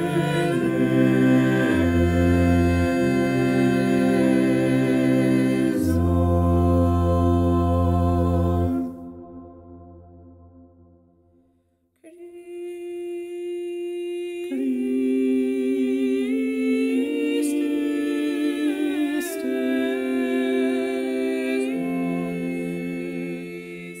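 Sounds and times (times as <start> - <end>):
voices singing in harmony: 0.0 - 11.0, 12.0 - 24.0.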